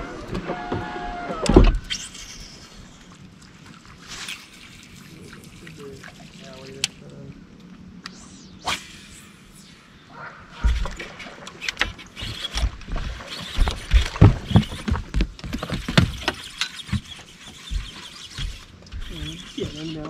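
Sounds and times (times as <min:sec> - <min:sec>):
knocks and thumps on boat deck: 0:12.5 - 0:17.1.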